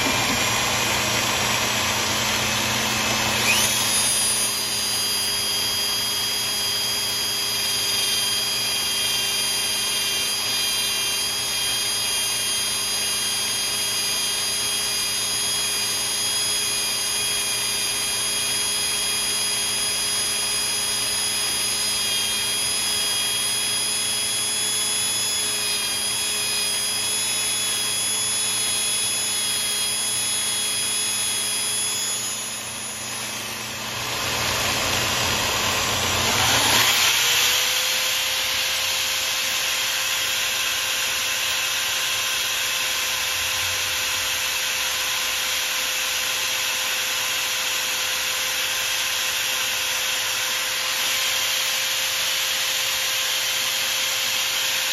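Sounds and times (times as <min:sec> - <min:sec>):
motor speeding up: 0:00.0 - 0:40.6
motors whining: 0:00.0 - 0:52.5.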